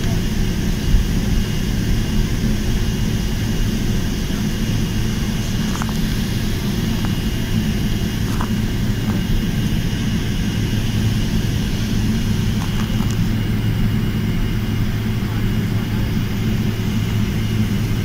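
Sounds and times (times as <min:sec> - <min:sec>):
high engine whine: 0:00.0 - 0:18.0
jet cabin low drone: 0:00.0 - 0:18.0.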